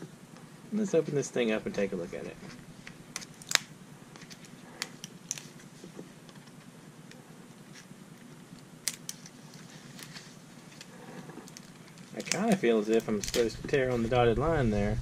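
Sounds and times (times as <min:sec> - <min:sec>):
plastic packaging clicking and crackling: 0:02.8 - 0:06.6, 0:07.8 - 0:13.5.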